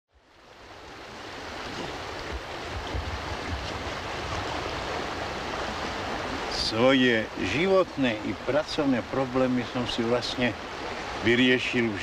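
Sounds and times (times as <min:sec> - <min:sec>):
river water rushing over stones: 0:00.2 - 0:12.0
wind rumble on microphone: 0:00.6 - 0:06.5.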